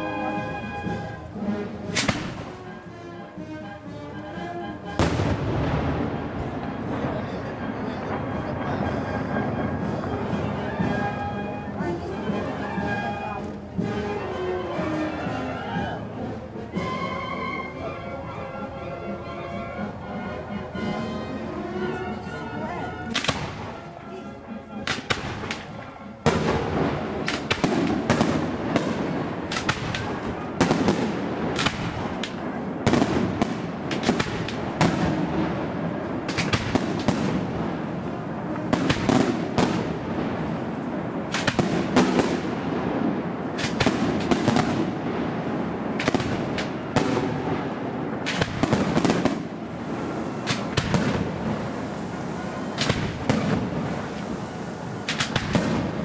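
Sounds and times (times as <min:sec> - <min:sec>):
fireworks bangs: 0:00.0 - 0:02.8, 0:04.9 - 0:14.3, 0:23.0 - 0:24.1, 0:24.8 - 0:56.0
continuous din of explosions: 0:04.9 - 0:11.3, 0:23.1 - 0:23.8, 0:24.8 - 0:56.0.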